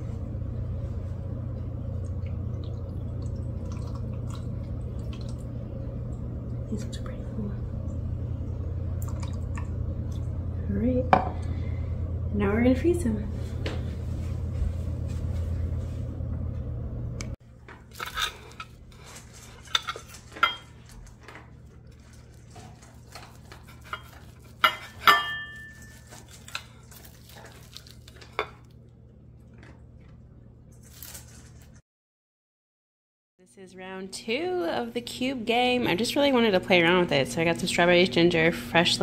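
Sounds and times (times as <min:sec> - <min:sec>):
steady low hum: 0:00.0 - 0:31.8, 0:33.4 - 0:39.0
knife and fork scraping on plate: 0:22.8 - 0:26.7.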